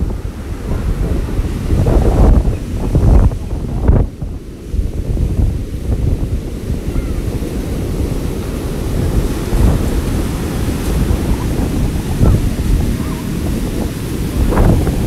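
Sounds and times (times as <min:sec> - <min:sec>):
heavy surf crashing: 0:00.0 - 0:15.0
wind buffeting the microphone: 0:00.0 - 0:15.0.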